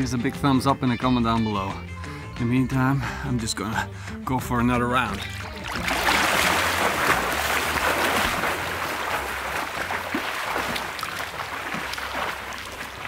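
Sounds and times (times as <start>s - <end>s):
swimmer splashing in pool: 5.2s - 13.0s.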